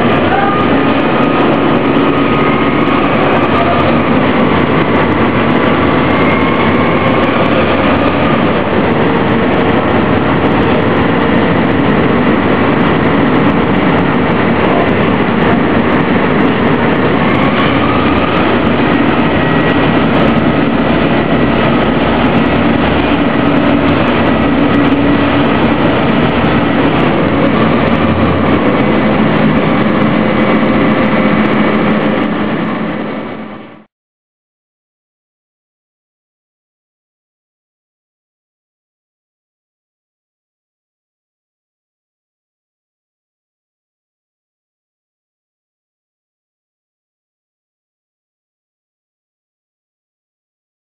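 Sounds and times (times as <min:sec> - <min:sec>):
ferry engine droning: 0:00.0 - 0:33.9.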